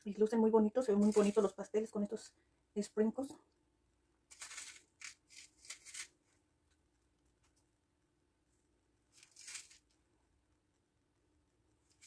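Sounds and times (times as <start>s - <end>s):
dry rustles of sprinkles: 0.9s - 1.6s, 4.3s - 6.4s, 9.1s - 10.0s.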